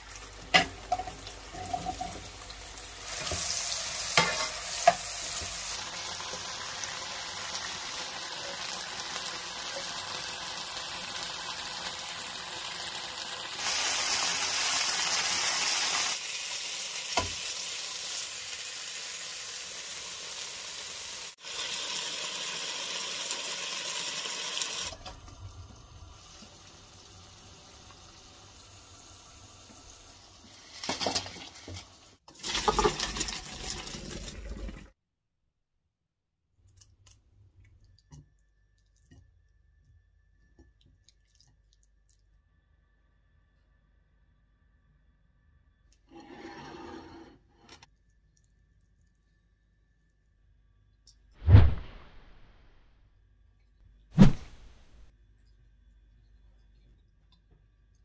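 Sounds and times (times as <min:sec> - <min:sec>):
food sizzling in oil: 0:00.0 - 0:25.0
water pouring into colander: 0:32.3 - 0:34.9.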